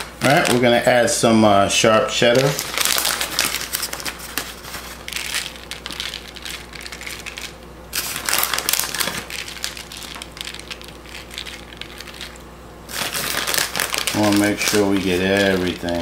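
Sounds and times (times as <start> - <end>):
tortilla chips crackling: 0.0 - 1.0, 2.2 - 16.0
parchment paper rustling: 0.0 - 1.2, 1.9 - 16.0.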